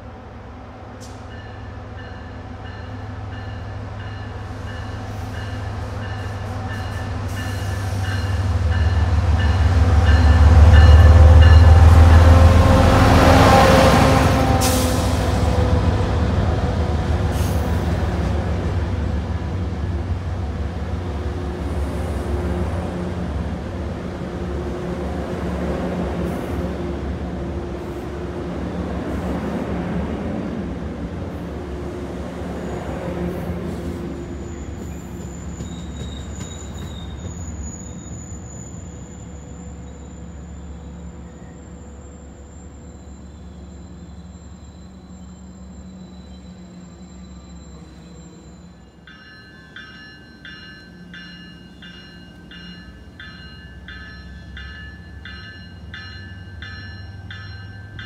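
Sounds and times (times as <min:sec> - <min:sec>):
train wheels rumbling on rails: 0:00.8 - 0:40.4.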